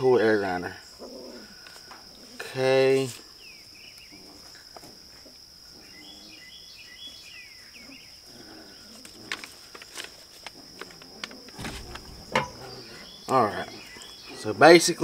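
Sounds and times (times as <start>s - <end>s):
birds chirping: 5.7s - 9.0s, 10.6s - 15.0s
handling clicks and rustles: 9.2s - 14.1s.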